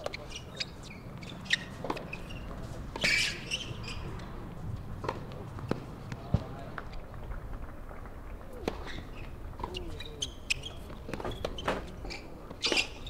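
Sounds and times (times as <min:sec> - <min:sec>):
tennis ball bouncing: 0:01.2 - 0:04.0, 0:05.0 - 0:06.9
racket striking tennis ball: 0:05.0 - 0:06.5.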